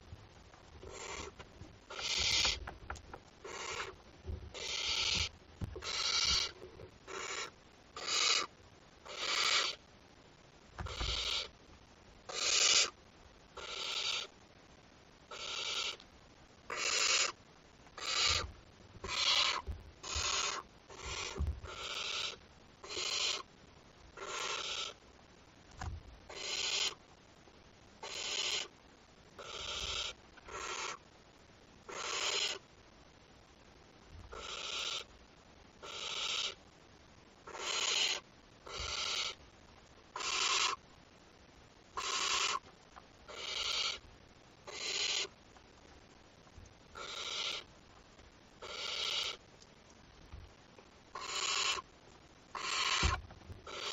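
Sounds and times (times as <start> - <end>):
owlet rasping hissing call: 0.9 - 2.6, 3.4 - 4.0, 4.6 - 8.5, 9.1 - 9.8, 10.9 - 11.6, 12.3 - 13.0, 13.6 - 14.3, 15.3 - 16.0, 16.7 - 17.4, 18.0 - 23.5, 24.2 - 25.0, 26.3 - 27.0, 28.0 - 28.7, 29.4 - 31.0, 31.9 - 32.6, 34.3 - 35.1, 35.8 - 36.6, 37.5 - 39.4, 40.2 - 40.8, 42.0 - 42.7, 43.3 - 44.0, 44.7 - 45.3, 47.0 - 47.7, 48.6 - 49.4, 51.2 - 51.9, 52.5 - 53.9.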